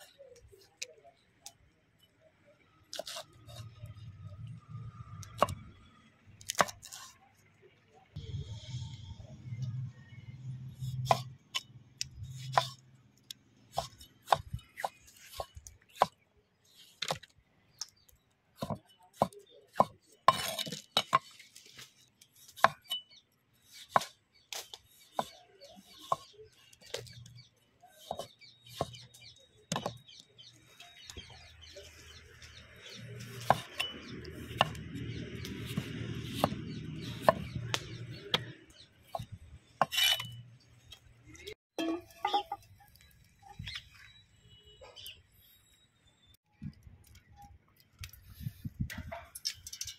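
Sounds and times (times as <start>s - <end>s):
knife chopping on wooden board: 13.7s - 16.2s, 28.0s - 29.0s, 33.3s - 40.3s.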